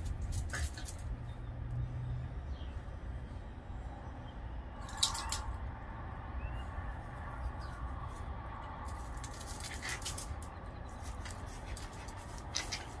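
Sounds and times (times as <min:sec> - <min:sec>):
dogs scuffling: 0:08.1 - 0:13.0.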